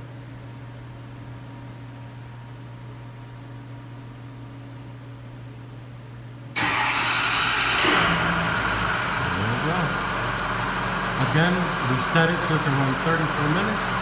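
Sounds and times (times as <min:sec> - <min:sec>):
steady low hum: 0:00.0 - 0:06.6, 0:07.3 - 0:14.0
diesel engine starting and running: 0:06.6 - 0:14.0.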